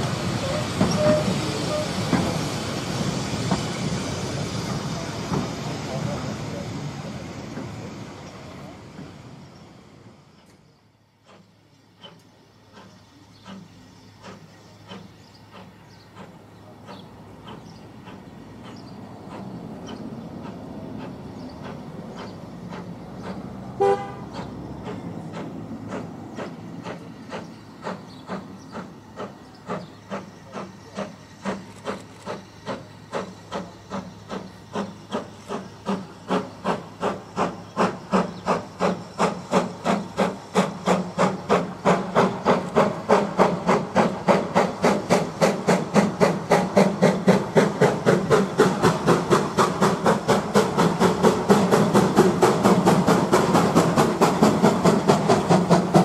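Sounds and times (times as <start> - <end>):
steam locomotive exhaust beats: 0.0 - 56.0
steam locomotive whistle: 0.2 - 2.3, 23.8 - 24.5.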